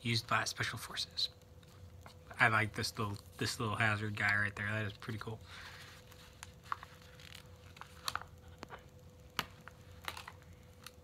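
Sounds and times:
faint steady hum: 0.0s - 11.0s
small clicks and rustles: 6.0s - 11.0s.

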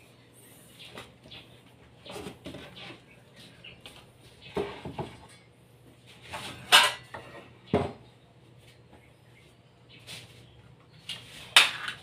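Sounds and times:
knocks and scrapes of wood: 2.0s - 3.1s.

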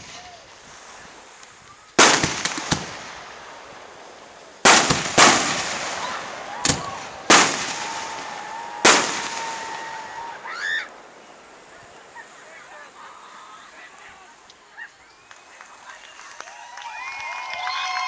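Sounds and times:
fireworks bursting with echo: 0.0s - 13.0s.

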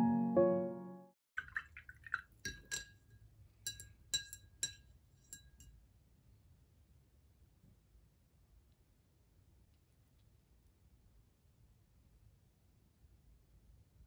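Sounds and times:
paintbrush clinking glass jar: 1.4s - 5.7s.

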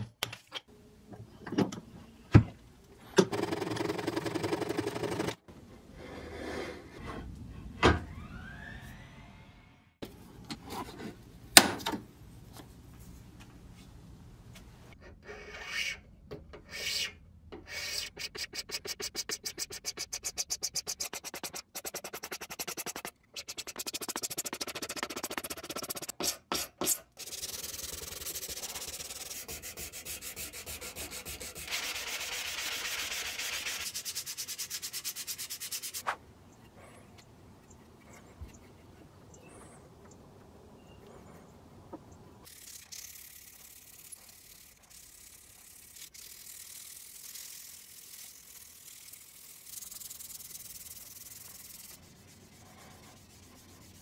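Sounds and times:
sanding wood: 17.8s - 26.2s, 27.2s - 36.0s, 42.5s - 54.0s.

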